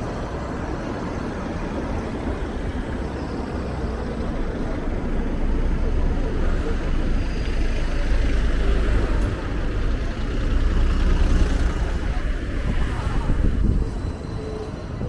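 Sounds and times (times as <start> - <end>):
low traffic rumble: 0.0 - 15.0
motor vehicles passing: 0.0 - 15.0.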